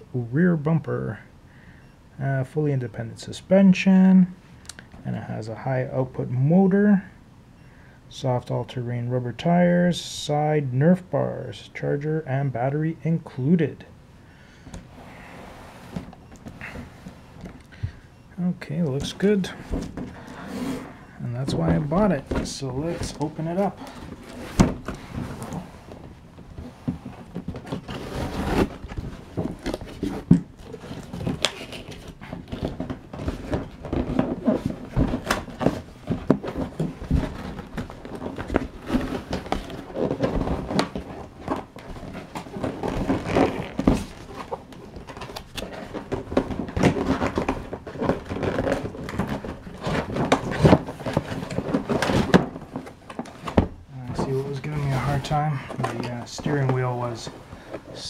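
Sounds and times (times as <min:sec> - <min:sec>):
cardboard scraping and rustling: 0:14.9 - 0:17.6, 0:18.6 - 0:58.0
box knocks and thumps: 0:19.0 - 0:58.0.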